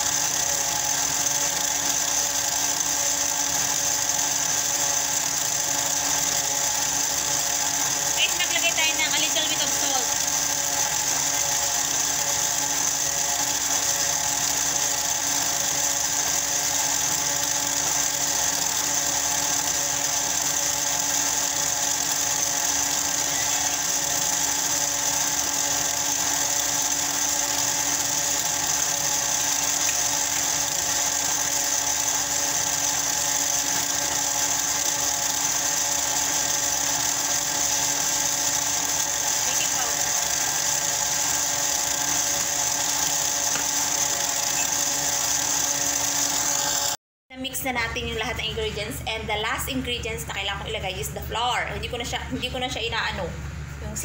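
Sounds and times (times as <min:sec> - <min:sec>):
stand mixer motor whine: 0:00.0 - 0:47.0.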